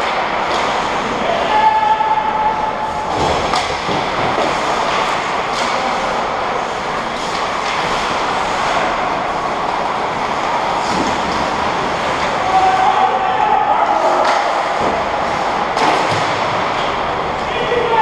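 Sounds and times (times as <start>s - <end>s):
loud rushing noise: 0.0s - 18.0s
stick or puck clacks: 3.4s - 6.0s.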